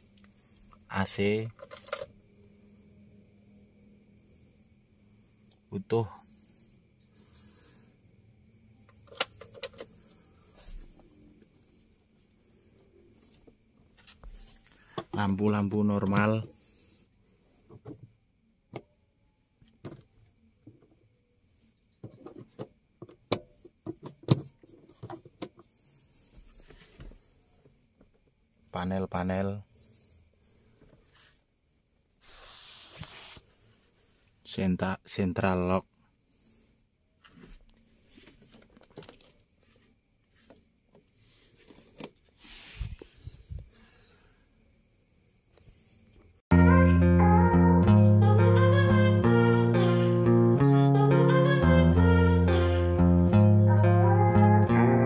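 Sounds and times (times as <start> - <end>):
short rustle: 32.2 - 34.3, 37.2 - 43.7.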